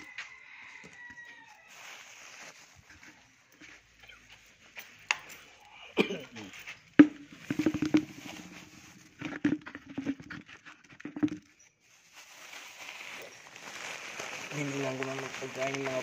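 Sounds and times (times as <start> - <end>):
seeds rattling in plastic tub: 6.6 - 16.0.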